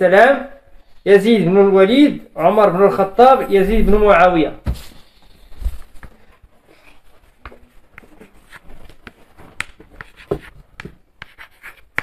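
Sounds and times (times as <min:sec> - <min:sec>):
faint scratching of writing: 0:05.0 - 0:12.0.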